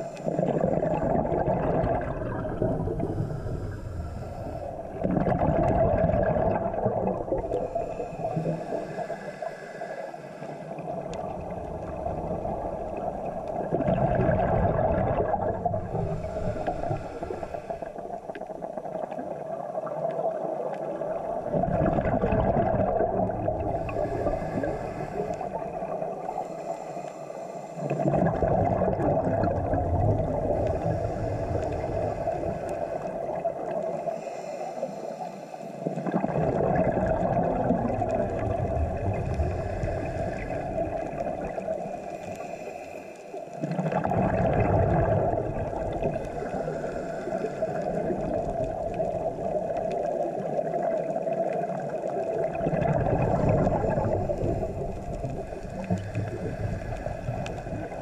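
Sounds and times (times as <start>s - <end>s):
diver breathing through regulator: 0.0s - 1.0s, 2.6s - 5.2s, 7.5s - 11.9s, 15.3s - 18.4s, 23.4s - 28.5s, 30.3s - 36.5s, 39.1s - 43.8s, 45.6s - 49.1s, 53.2s - 58.0s
rush of bubbles: 0.0s - 9.7s, 10.4s - 26.6s, 27.8s - 34.2s, 35.8s - 42.6s, 43.5s - 58.0s.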